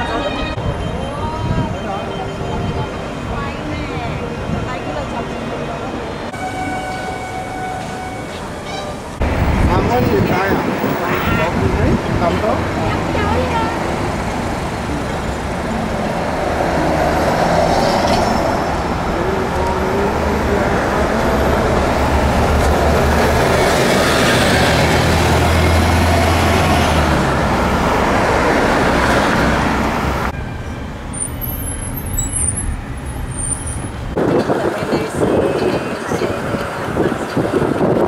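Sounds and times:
bus engine hum: 0:00.0 - 0:38.0
city street traffic: 0:00.0 - 0:38.0.

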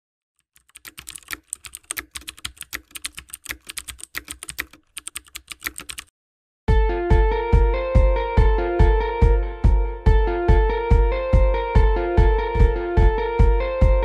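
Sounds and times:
keyboard typing clicks: 0:00.4 - 0:06.1.

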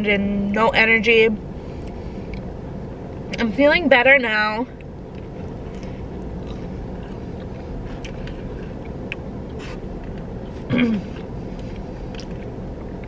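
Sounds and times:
car cabin hum: 0:00.0 - 0:13.0
chewing and food handling clicks: 0:11.2 - 0:13.0.

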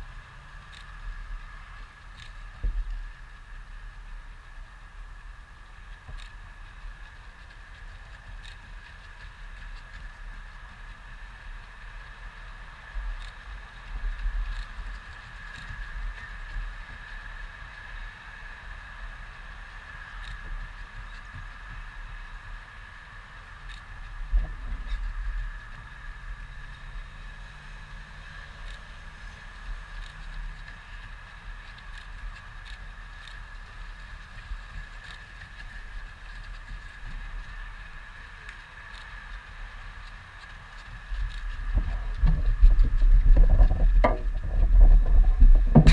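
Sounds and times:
steady high-pitched hum: 0:00.0 - 0:45.9
wind rumbling on microphone: 0:00.0 - 0:45.9
low rumble: 0:41.5 - 0:45.9.

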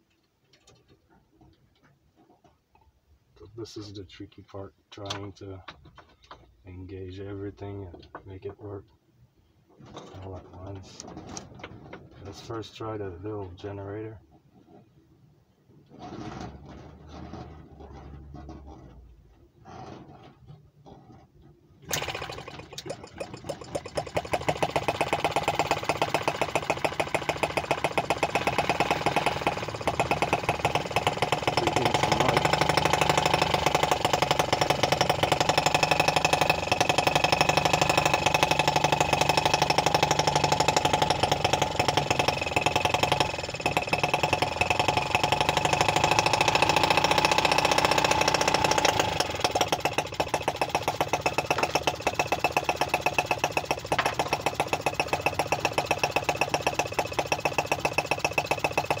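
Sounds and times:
model engine running: 0:21.9 - 0:59.0.

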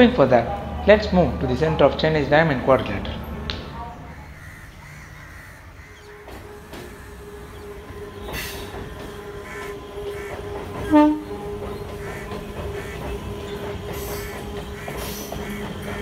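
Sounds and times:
train wheels clacking over rail joints: 0:04.5 - 0:16.0
train horn blast: 0:06.0 - 0:16.0.

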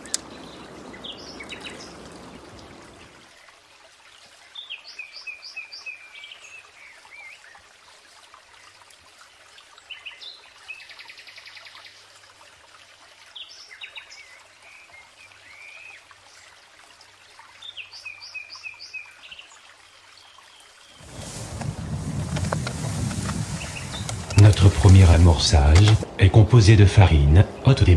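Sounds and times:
songbirds singing: 0:00.0 - 0:03.2, 0:04.5 - 0:07.6, 0:17.5 - 0:26.0
faint outdoor background noise: 0:00.0 - 0:27.9.

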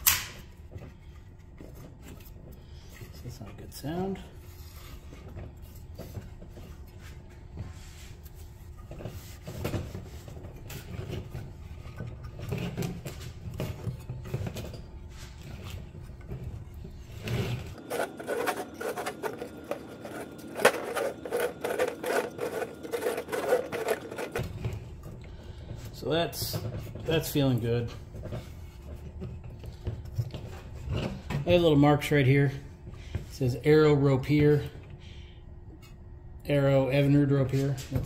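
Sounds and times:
recoil starter scraping: 0:16.9 - 0:28.6.

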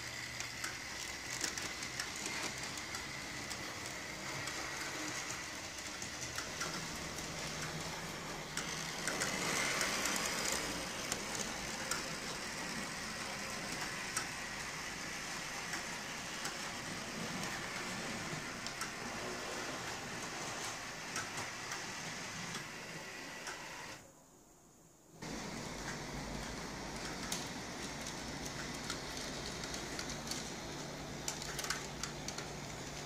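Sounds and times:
wheels clicking over rail joints: 0:00.0 - 0:22.8, 0:25.2 - 0:33.0
model tram motor whir: 0:00.0 - 0:24.0.

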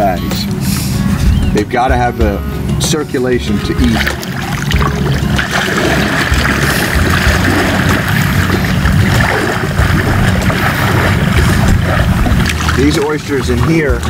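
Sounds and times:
water splashing and sloshing: 0:02.6 - 0:14.0
wind on microphone: 0:05.7 - 0:12.8.

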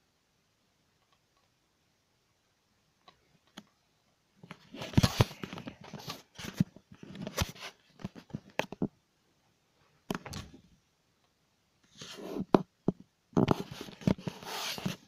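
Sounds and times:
faint clicks: 0:01.0 - 0:01.6
camera handling noise: 0:04.8 - 0:08.8.

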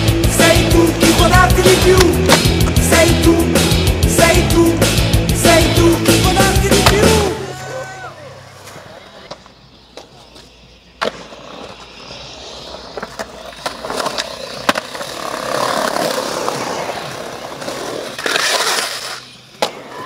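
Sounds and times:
skateboard wheels rolling on concrete: 0:00.0 - 0:20.0
skateboard clacking on ground: 0:08.6 - 0:20.0.

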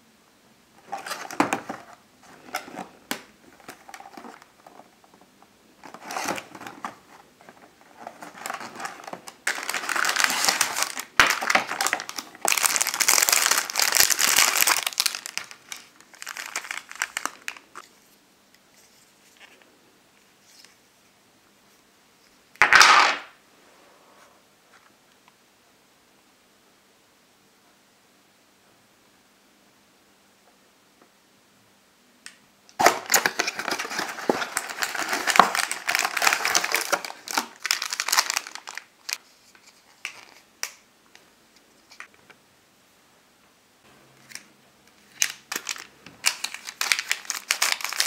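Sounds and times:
plastic packaging crinkling: 0:00.8 - 0:04.9, 0:05.8 - 0:17.8, 0:32.8 - 0:40.8, 0:44.3 - 0:48.0.

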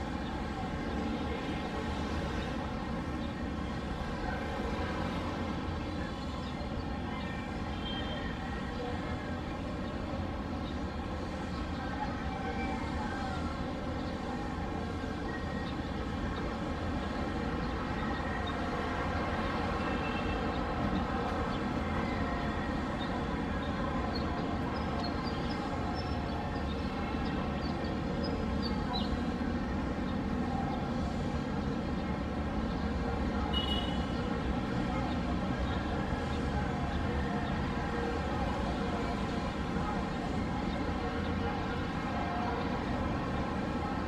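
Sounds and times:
distant city traffic rumble: 0:00.0 - 0:44.0.

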